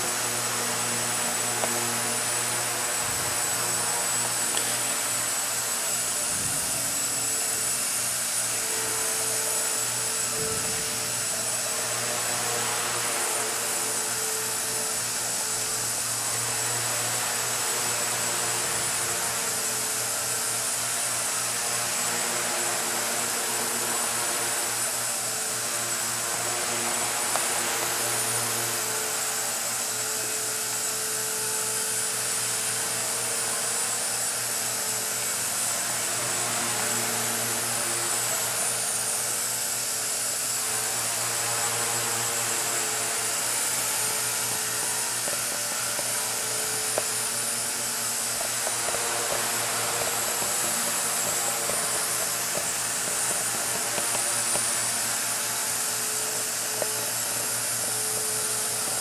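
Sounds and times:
toy helicopter motors whining: 0.0s - 59.0s
rotors buzzing: 36.1s - 59.0s.

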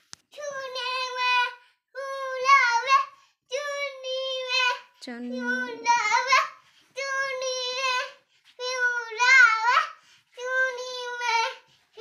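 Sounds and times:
high-pitched voice singing: 5.2s - 6.2s.

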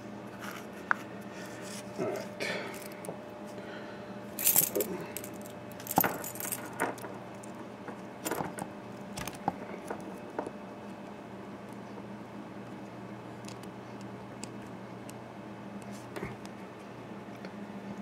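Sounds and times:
small metal parts clattering: 4.4s - 7.1s.

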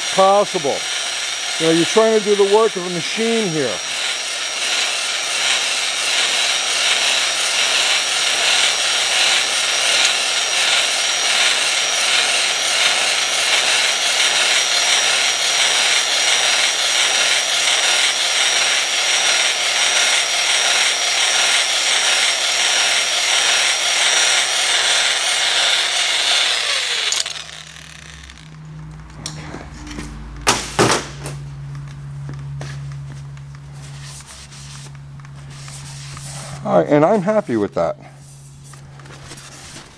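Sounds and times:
electric drill whirring: 0.0s - 30.4s
low hum: 26.5s - 39.7s.

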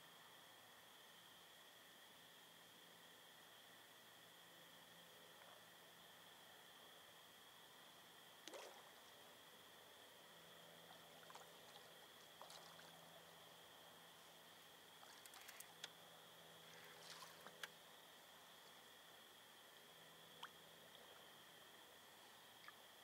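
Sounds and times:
faint high-pitched hum: 0.0s - 23.0s
soft clicks and ticks: 17.4s - 17.8s.

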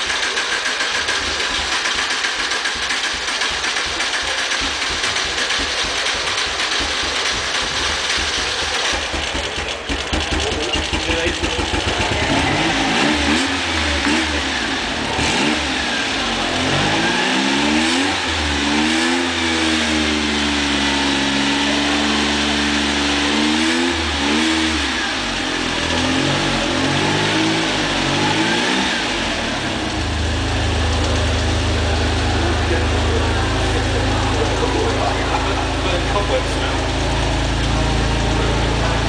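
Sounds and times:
car engine idling: 0.0s - 39.0s
car engine revving: 0.0s - 39.0s.

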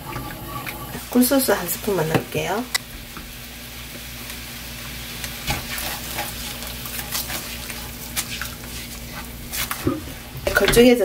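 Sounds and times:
sauce bubbling and sizzling: 0.0s - 11.0s
spatula scraping and tapping pan: 5.5s - 11.0s.

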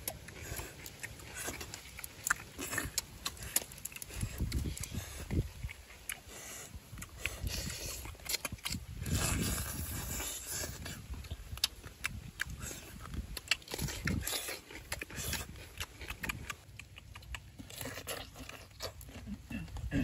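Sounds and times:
crab shells cracking: 0.0s - 6.2s
chewing and lip-smacking: 0.0s - 20.0s.

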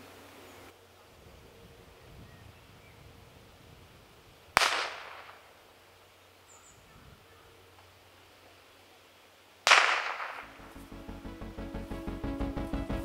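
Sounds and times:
gunshot crack with echo: 4.6s - 5.5s, 9.6s - 10.6s.

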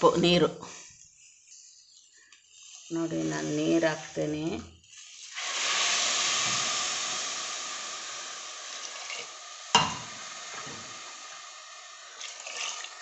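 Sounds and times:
water sizzling in hot pan: 1.4s - 13.0s
sharp knock: 9.8s - 10.1s.

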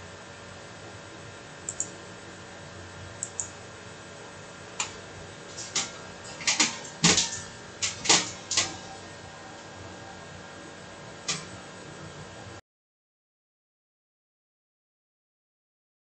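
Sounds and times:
faint steady hum: 0.0s - 12.6s
keyboard and mouse clicks: 1.6s - 2.0s, 3.2s - 3.5s.

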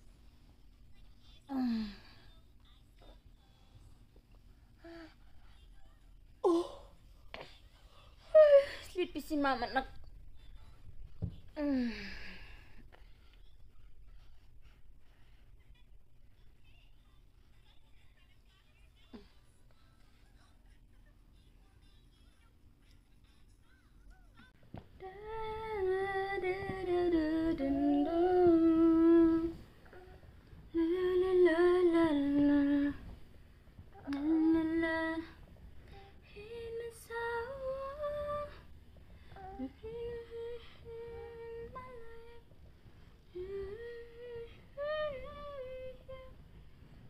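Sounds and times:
woman humming a lullaby: 1.5s - 2.3s, 6.4s - 7.0s, 8.3s - 8.9s, 25.0s - 33.1s, 33.9s - 38.6s, 39.3s - 42.6s, 43.2s - 46.4s.

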